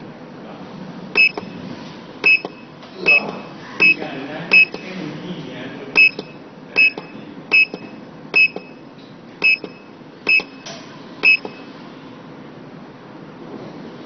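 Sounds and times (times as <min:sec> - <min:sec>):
short high electronic beeps: 0:01.2 - 0:01.6, 0:02.2 - 0:04.9, 0:06.0 - 0:08.8, 0:09.4 - 0:11.7.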